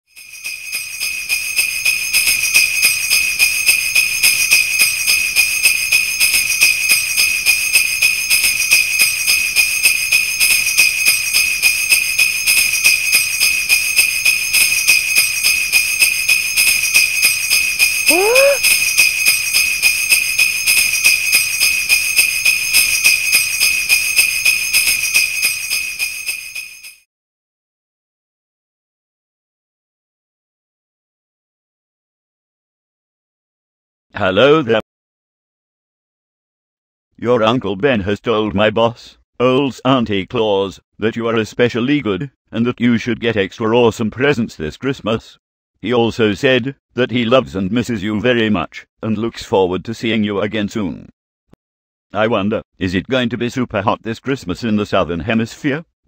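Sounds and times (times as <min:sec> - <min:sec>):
jingle bells shaken: 0:00.1 - 0:27.1.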